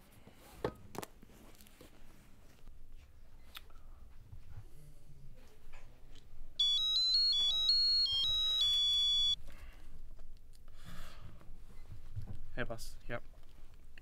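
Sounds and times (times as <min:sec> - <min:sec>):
phone ringtone beeping melody: 0:06.6 - 0:09.4.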